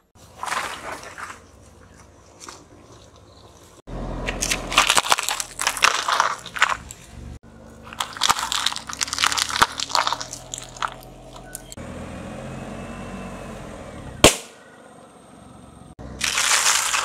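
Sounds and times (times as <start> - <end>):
low rumble of rolling car: 0.0 - 17.0
tyre crushing plastic cups: 4.3 - 7.1, 7.8 - 11.2, 16.2 - 17.0.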